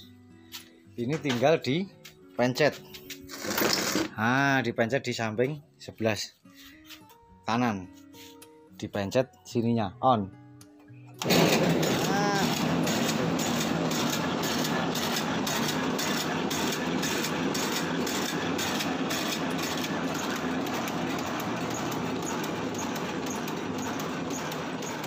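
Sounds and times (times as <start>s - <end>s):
machine motor and cutter blades clattering: 3.3s - 4.1s, 11.2s - 25.0s.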